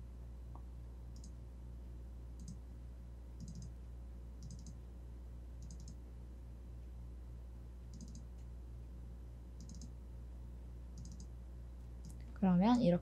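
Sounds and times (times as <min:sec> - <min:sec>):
low electrical hum: 0:00.0 - 0:13.0
computer mouse clicking: 0:01.1 - 0:01.4, 0:02.4 - 0:02.6, 0:03.4 - 0:03.7, 0:04.4 - 0:04.8, 0:05.6 - 0:06.0, 0:07.9 - 0:08.5, 0:09.6 - 0:09.9, 0:11.0 - 0:11.3.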